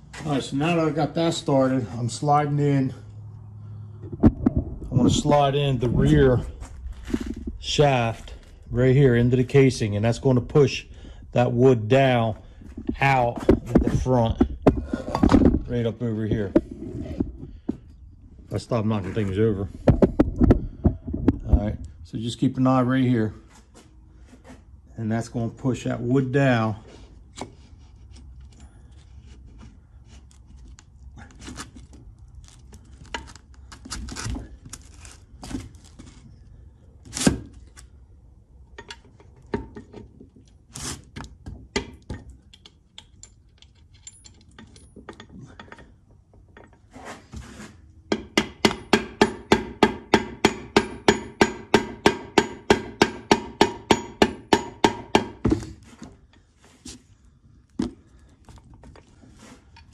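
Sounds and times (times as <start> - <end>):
parts clicking and knocking: 12.2 - 15.7, 19.8 - 22.0, 27.3 - 36.3, 38.6 - 46.9
hammer tapping metal: 48.1 - 55.4.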